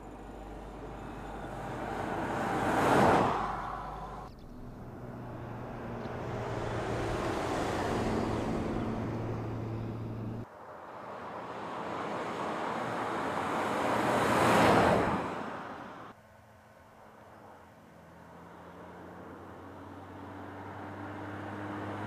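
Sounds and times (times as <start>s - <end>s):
car driving past: 1.0s - 15.3s.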